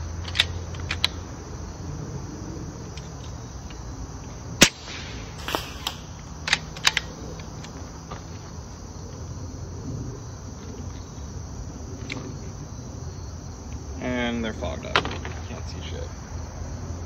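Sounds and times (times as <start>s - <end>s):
metallic clicks from rifle action: 0.2s - 1.2s, 5.8s - 7.7s
short hiss: 4.6s - 6.4s
air rifle sharp crack: 4.6s - 7.2s.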